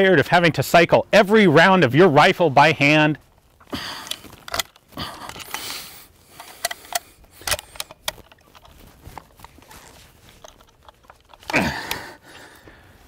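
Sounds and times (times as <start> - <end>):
breathy falling sound: 3.6 - 7.9, 11.4 - 13.0
rifle being handled clicking: 3.9 - 12.2.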